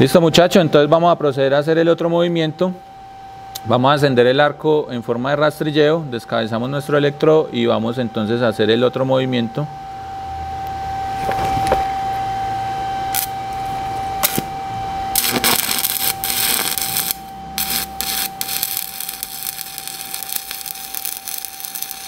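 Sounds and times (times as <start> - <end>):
steady whine and low hum: 0.0 - 22.0
welding arc crackling hiss: 13.1 - 13.4, 14.2 - 14.5, 15.1 - 22.0.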